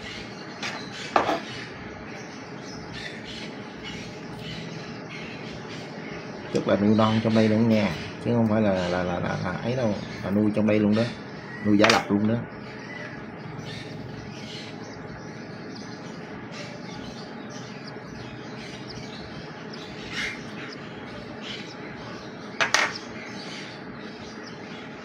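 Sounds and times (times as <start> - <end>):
chick peeping: 0.0 - 25.0
steady background hum: 0.0 - 25.0
chick squawks: 17.8 - 22.2.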